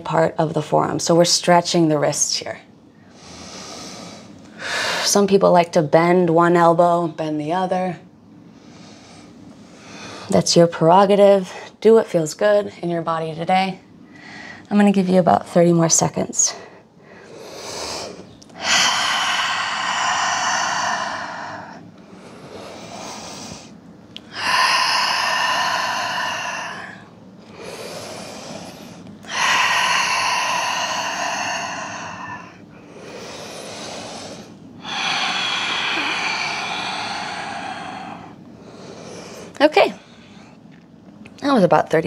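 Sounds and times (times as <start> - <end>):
woman breathing deeply: 3.0 - 5.2, 8.4 - 10.4, 14.0 - 14.7, 16.5 - 40.6.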